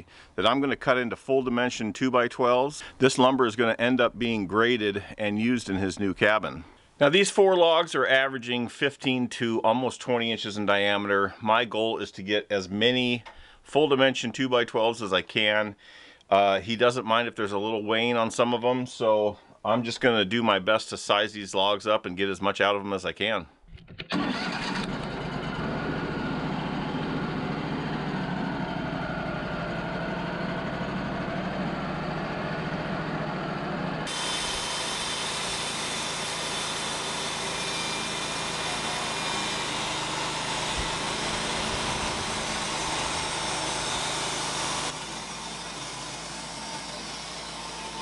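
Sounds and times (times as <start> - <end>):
band sawmill running: 24.1 - 48.0
band saw cutting log: 34.0 - 48.0.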